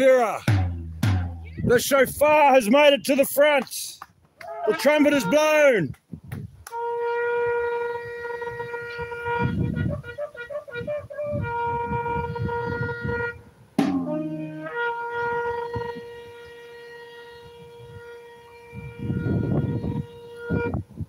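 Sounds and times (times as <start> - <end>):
shofar blasts: 4.4 - 5.8, 6.7 - 20.9.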